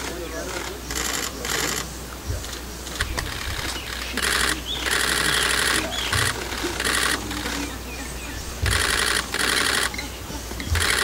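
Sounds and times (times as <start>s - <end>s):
camera shutters firing: 0.9s - 7.7s, 8.6s - 9.9s.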